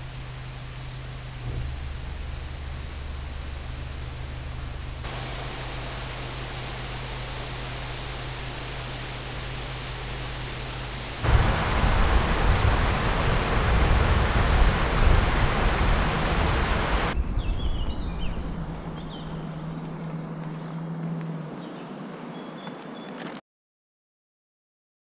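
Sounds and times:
faint steady hum: 0.0 - 17.3
water rushing through lock gates: 5.0 - 17.2
birds chirping: 5.0 - 23.2.

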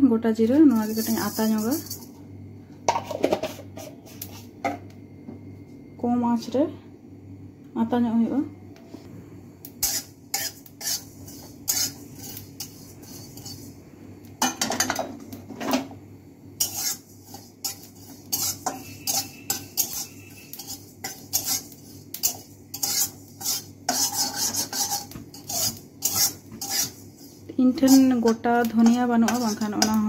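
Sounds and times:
metal spatula scraping a pan: 0.7 - 2.2, 9.8 - 13.8, 16.6 - 30.0.

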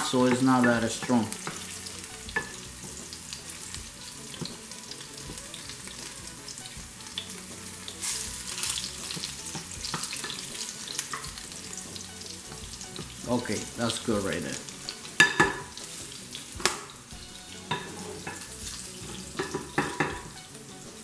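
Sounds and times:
garlic sizzling in oil: 0.0 - 21.0
wooden spoon stirring: 17.3 - 20.5.

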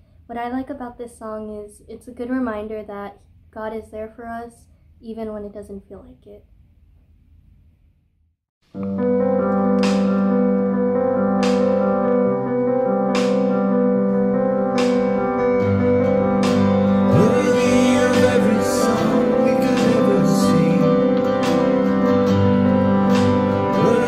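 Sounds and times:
held keyboard chords: 8.7 - 24.0
person singing: 17.0 - 24.0.

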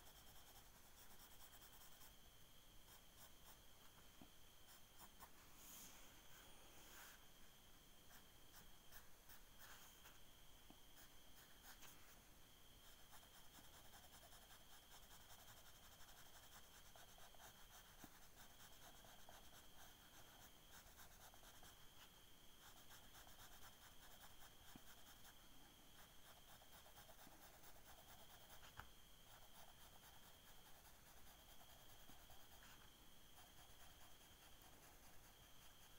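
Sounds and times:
pencil scratching on paper: 0.0 - 2.1, 2.8 - 3.6, 8.1 - 10.1, 11.0 - 12.2, 12.8 - 25.4, 26.0 - 35.9.

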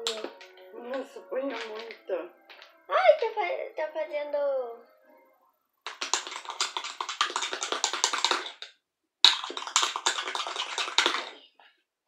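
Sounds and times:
sticky clicks of stirred slime: 5.9 - 11.4.

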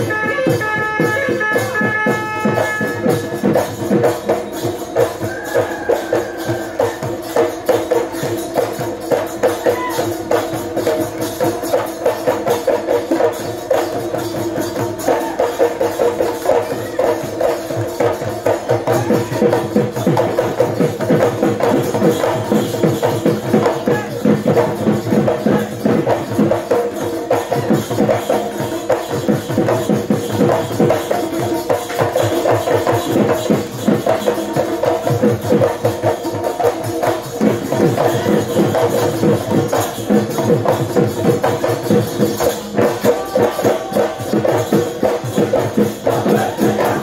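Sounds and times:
drums beaten in fast rhythm: 0.0 - 47.0.

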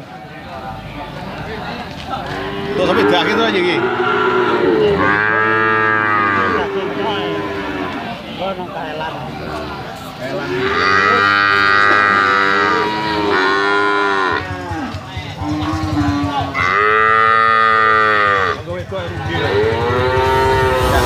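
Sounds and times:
cattle mooing: 2.2 - 8.2, 10.4 - 18.6, 19.3 - 21.0.

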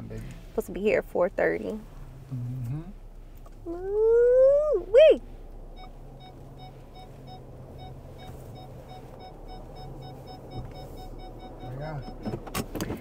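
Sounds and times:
car low steady hum: 0.0 - 13.0
car warning chime beeping: 5.2 - 12.7.

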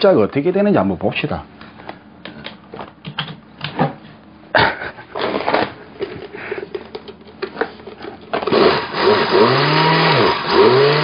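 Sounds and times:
blender being handled: 5.1 - 9.4
blender motor grinding bread: 8.3 - 11.0.

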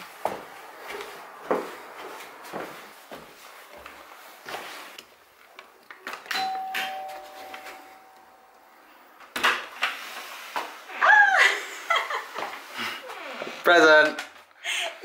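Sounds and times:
two-tone doorbell chime: 6.3 - 8.6.

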